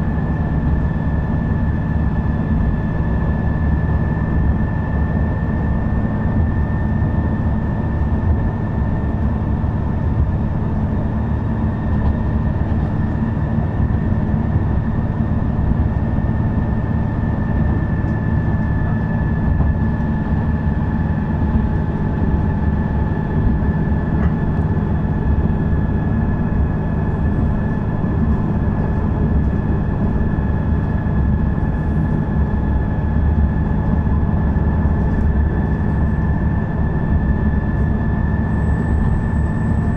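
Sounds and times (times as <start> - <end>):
railcar engine and wheels rumbling: 0.0 - 39.9.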